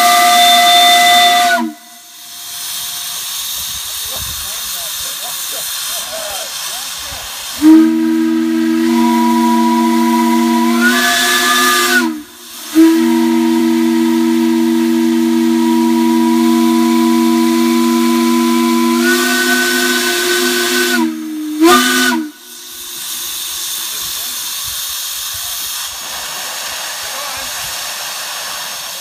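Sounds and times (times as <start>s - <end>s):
steam whistle blasts: 0.0s - 3.0s, 7.6s - 24.0s
steam hissing: 0.0s - 29.0s.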